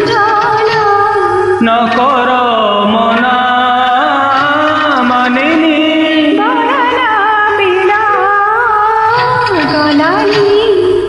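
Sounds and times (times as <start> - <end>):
karaoke backing track: 0.0 - 11.0
man singing into a microphone: 1.6 - 7.0.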